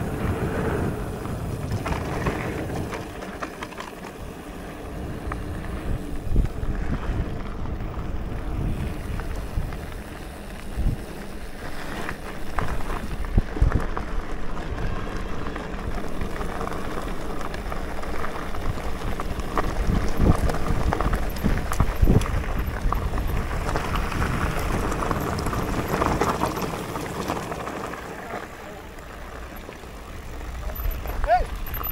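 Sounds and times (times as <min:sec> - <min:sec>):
wind buffeting microphone: 0:00.0 - 0:28.1
mountain bike rolling rumble: 0:00.0 - 0:31.9
tyres crunching over gravel: 0:00.0 - 0:31.9
bike knocks and rattles: 0:01.2 - 0:06.6, 0:08.7 - 0:28.2.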